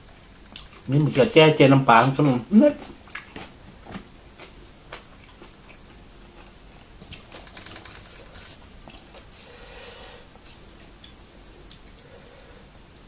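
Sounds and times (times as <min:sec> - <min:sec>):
person chewing food: 0:00.4 - 0:00.9, 0:02.0 - 0:09.7, 0:10.3 - 0:12.1.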